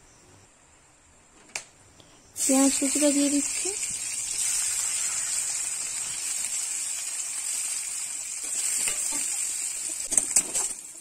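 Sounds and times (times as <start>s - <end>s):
onions sizzling in oil: 2.4s - 11.0s.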